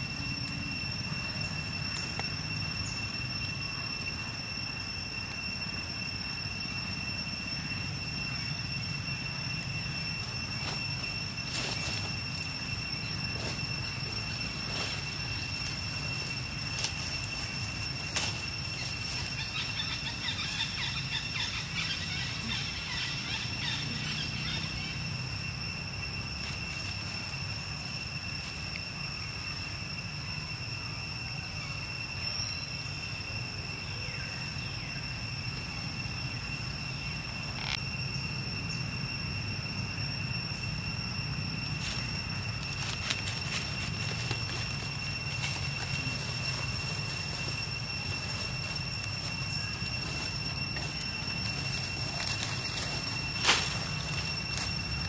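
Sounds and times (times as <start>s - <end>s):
faint chirps: 0.0s - 55.0s
high-pitched whine: 0.0s - 55.0s.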